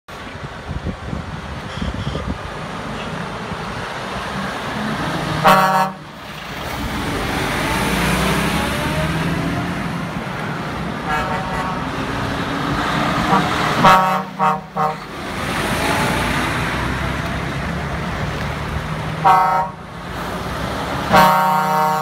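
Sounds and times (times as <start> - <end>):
lorry horn toot: 1.6 - 2.4, 5.4 - 6.1, 11.0 - 12.2, 13.2 - 15.1, 19.2 - 19.8, 21.1 - 22.0
lorry diesel engine pulling away: 2.4 - 11.1, 15.0 - 19.2.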